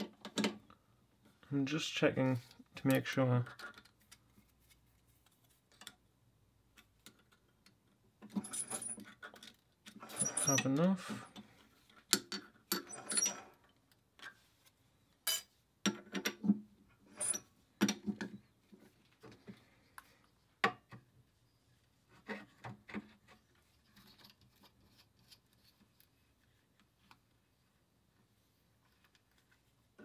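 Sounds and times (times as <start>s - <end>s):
metal tools clicking and clunking: 8.2s - 13.8s.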